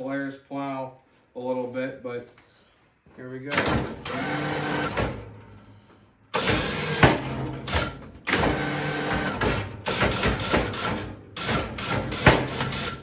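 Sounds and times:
electric winch whirring: 3.6s - 5.2s, 6.3s - 13.0s.

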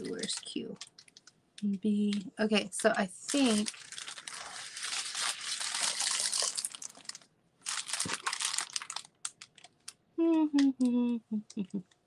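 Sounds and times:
plastic film crinkling: 0.0s - 1.4s, 3.2s - 10.0s.

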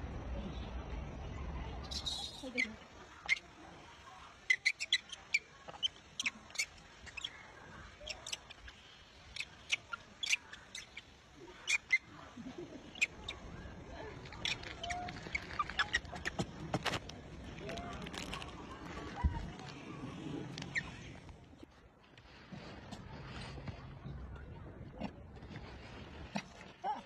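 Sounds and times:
high-pitched animal chirps: 1.8s - 3.4s, 4.4s - 7.4s, 8.0s - 12.1s.

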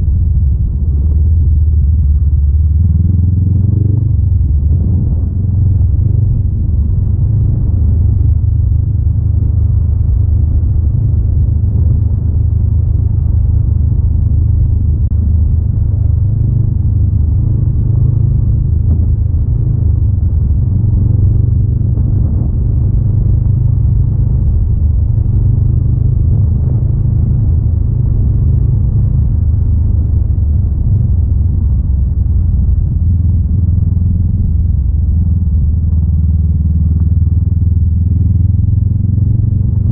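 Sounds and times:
motorcycle engine droning: 0.0s - 39.9s.

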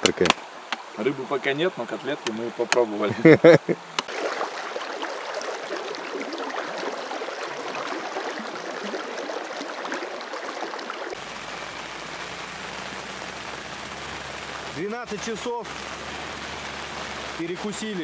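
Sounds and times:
water rushing and splashing: 0.0s - 18.0s.

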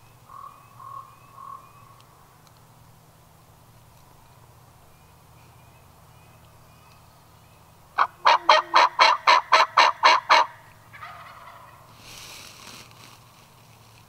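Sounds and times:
turkey yelping: 8.0s - 11.8s.

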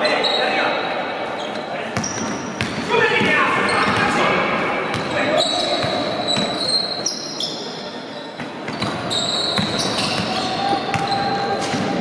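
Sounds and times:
sneakers squeaking: 0.0s - 12.0s
basketball bouncing: 4.9s - 5.2s, 8.7s - 12.0s.

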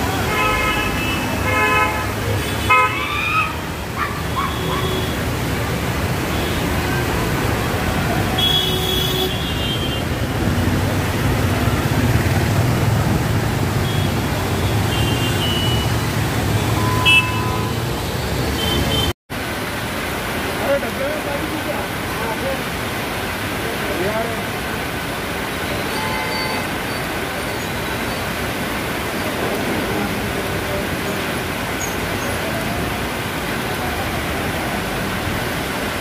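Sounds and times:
traffic on a wet road: 0.0s - 36.0s
car horn: 0.2s - 3.0s, 8.3s - 10.1s, 13.8s - 17.9s.

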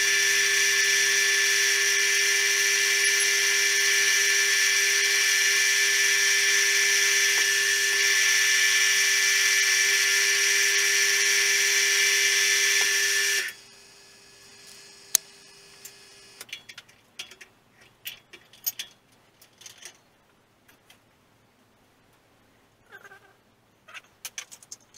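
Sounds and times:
milling machine whining: 0.0s - 16.4s
light metallic clicks and knocks: 16.4s - 20.0s.

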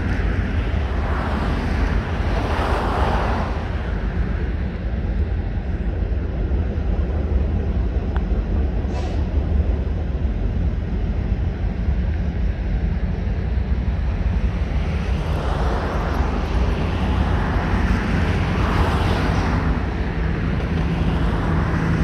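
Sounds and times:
freight train rolling past: 0.0s - 22.0s
hiss of wheels on rail: 8.5s - 12.4s.

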